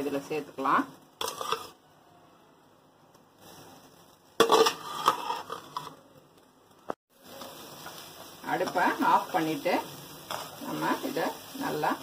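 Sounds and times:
spoon scraping a steel bowl: 0:01.2 - 0:01.8, 0:04.4 - 0:06.0.

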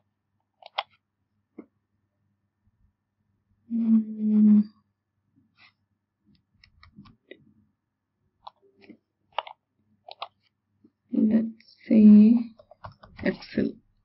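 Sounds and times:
keyboard clicks: 0:00.6 - 0:01.0, 0:08.4 - 0:10.4, 0:12.6 - 0:13.4
voice: 0:03.7 - 0:04.7, 0:11.1 - 0:13.8.

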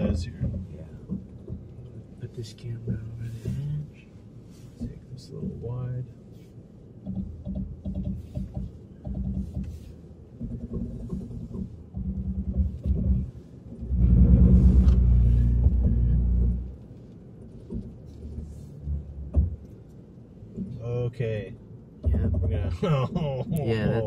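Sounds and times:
loud grinding groan: 0:13.8 - 0:16.8.

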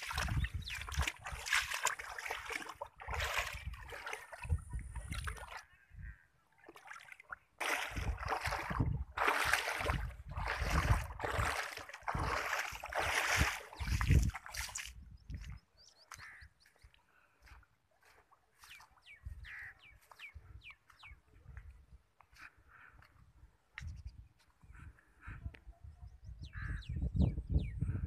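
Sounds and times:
floodwater sloshing and splashing: 0:00.0 - 0:20.2.

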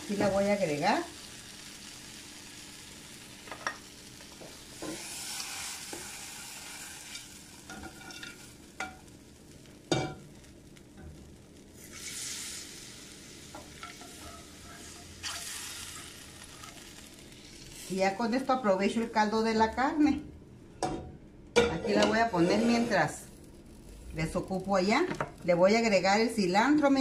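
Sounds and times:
food sizzling in a skillet: 0:00.0 - 0:20.0, 0:21.8 - 0:27.0
liquid hissing in hot pan: 0:04.6 - 0:07.7, 0:11.7 - 0:18.1.

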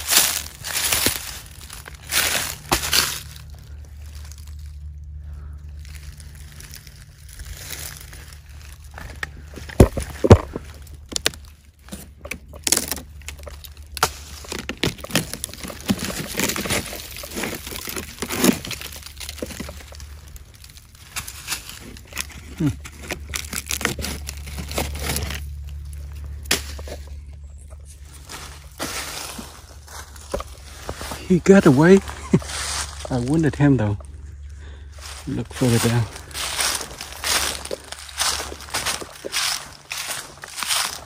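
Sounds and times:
footsteps crunching dry leaves: 0:00.0 - 0:41.0.

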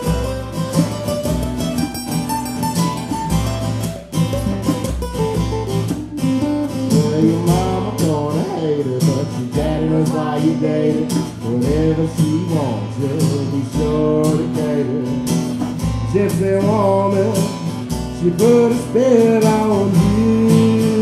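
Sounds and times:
acoustic guitars: 0:00.0 - 0:21.0
man singing: 0:06.7 - 0:21.0.

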